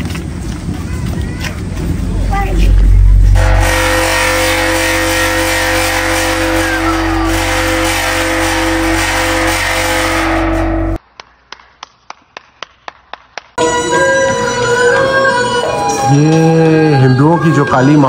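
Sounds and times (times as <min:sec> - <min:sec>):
gong humming: 0:02.6 - 0:11.0
hand claps: 0:11.1 - 0:13.6.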